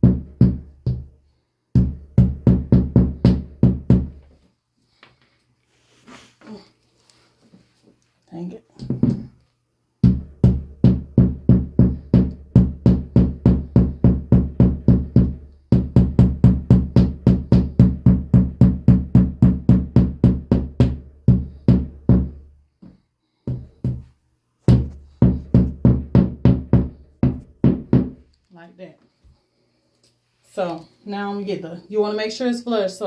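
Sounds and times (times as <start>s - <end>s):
hammer tapping wall anchor: 10.0s - 24.1s, 24.7s - 28.2s.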